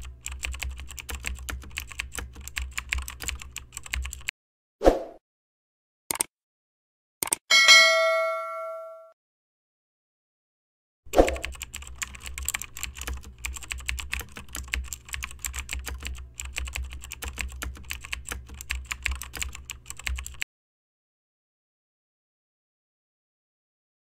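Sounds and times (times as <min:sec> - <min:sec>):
fast typing on computer keyboard: 0:00.0 - 0:04.3, 0:07.2 - 0:07.4, 0:11.3 - 0:20.4.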